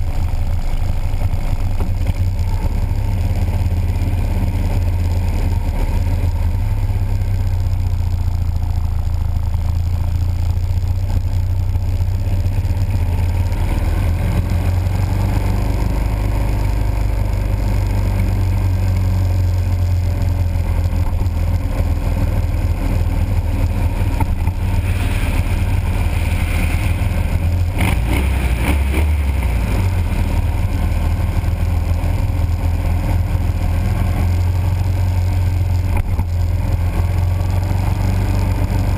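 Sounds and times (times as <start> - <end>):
motorcycle engine running: 0.0 - 38.9
wind and road noise: 0.0 - 38.9.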